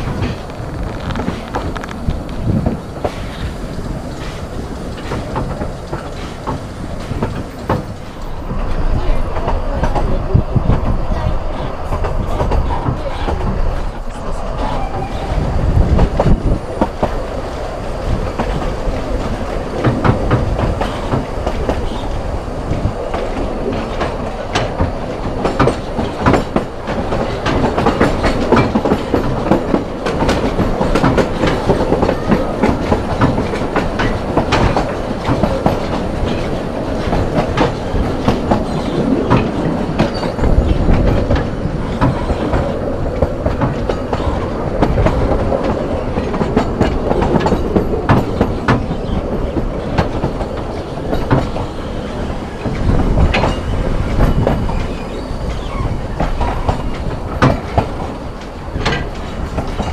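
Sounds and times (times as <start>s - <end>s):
train wheels rumbling: 0.0s - 59.9s
clicks and knocks from rail joints: 22.7s - 48.9s, 56.2s - 59.9s.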